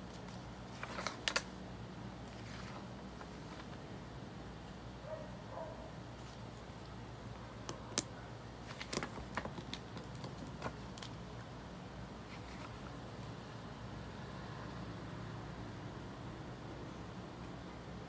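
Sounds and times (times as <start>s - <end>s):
low room hum: 0.0s - 18.0s
clicks and taps of handling books: 7.6s - 11.2s.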